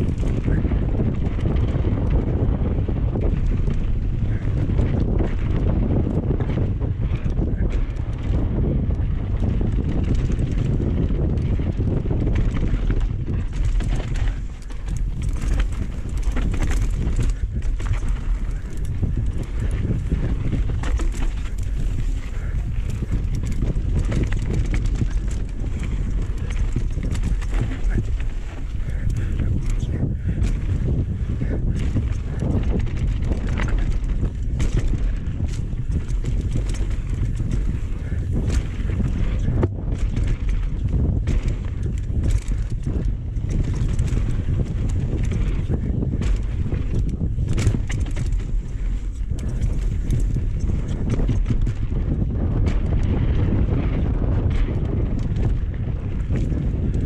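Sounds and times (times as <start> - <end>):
bike rattling over rough ground: 0.0 - 57.0
wind rushing over microphone: 0.0 - 57.0.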